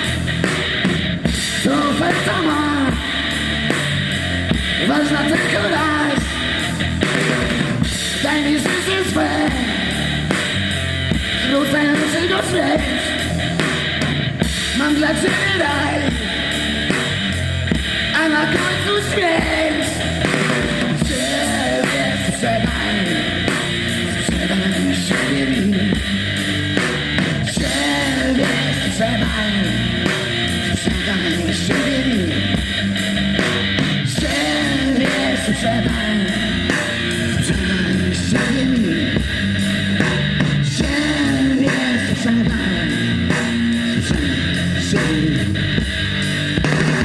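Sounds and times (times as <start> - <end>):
bass guitar: 0.0 - 47.0
drums: 0.0 - 47.0
electric guitar: 0.0 - 47.0
person singing: 1.4 - 3.5, 4.7 - 7.3, 8.0 - 10.5, 11.3 - 13.7, 14.6 - 16.6, 18.1 - 26.2, 27.4 - 32.6, 34.0 - 39.3, 40.6 - 45.8.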